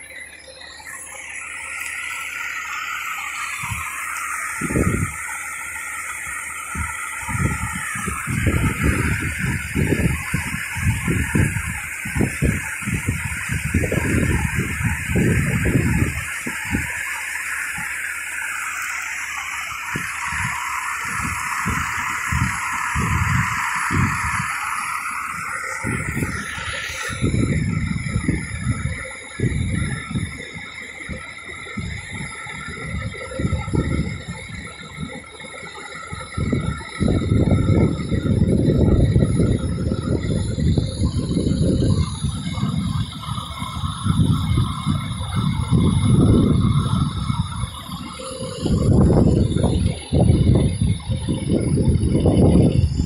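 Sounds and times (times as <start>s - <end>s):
low rumbles: 0.0s - 35.4s, 36.0s - 53.0s
water spray hissing: 1.4s - 29.3s.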